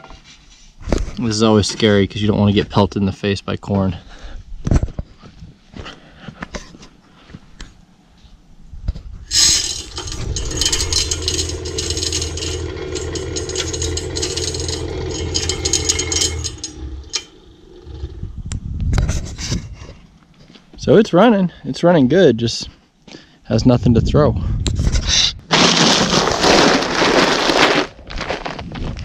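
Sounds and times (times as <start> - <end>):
feeder spinner motor rattling: 9.3 - 17.6.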